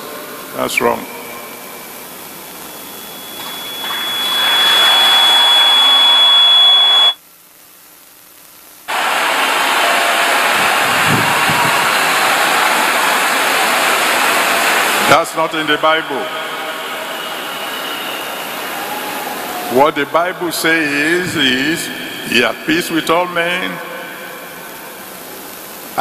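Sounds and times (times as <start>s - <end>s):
steady high whistle: 0.6s - 7.2s, 8.9s - 23.0s
congregation applauding: 3.4s - 7.2s, 8.9s - 21.8s.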